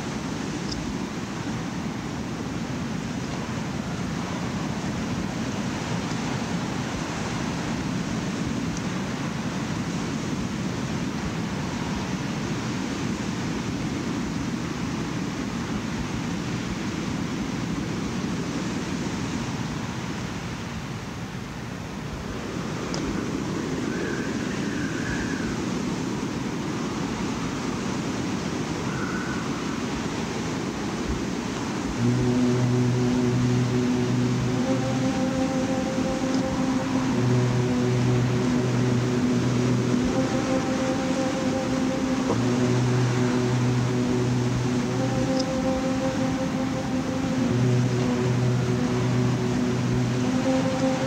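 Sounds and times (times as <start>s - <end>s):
low rumbling noise wash: 0.0s - 51.0s
loud pitched music: 32.0s - 51.0s.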